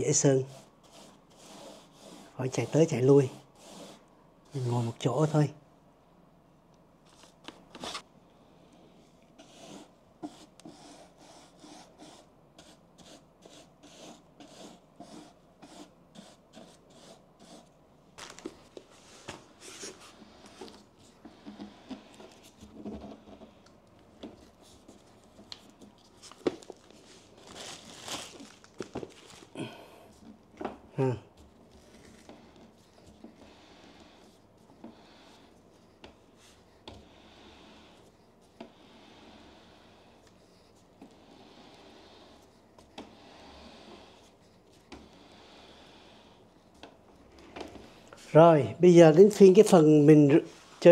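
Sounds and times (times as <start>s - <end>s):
paint applicator scratchy strokes: 0.0s - 5.5s, 9.4s - 23.6s, 31.8s - 47.3s.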